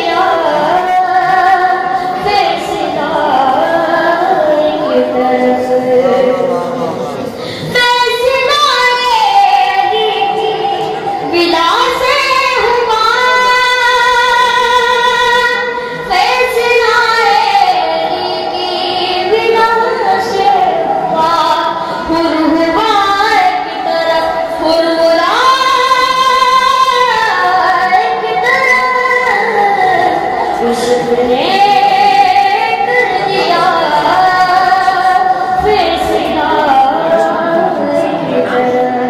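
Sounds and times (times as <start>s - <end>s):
boy singing devotional song: 0.0s - 39.0s.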